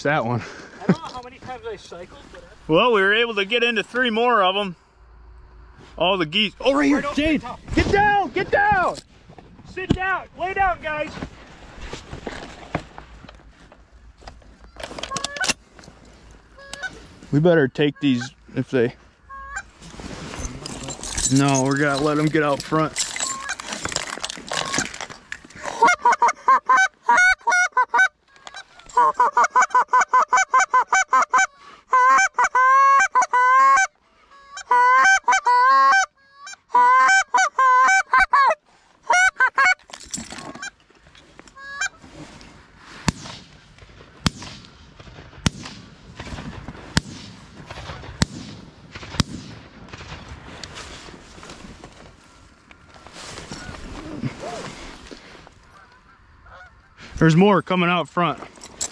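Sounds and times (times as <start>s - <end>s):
geese honking and clucking: 14.0s - 15.6s, 16.4s - 17.2s, 17.8s - 18.6s, 19.2s - 19.9s, 23.2s - 39.8s, 40.4s - 40.9s, 41.5s - 42.1s, 51.4s - 57.4s.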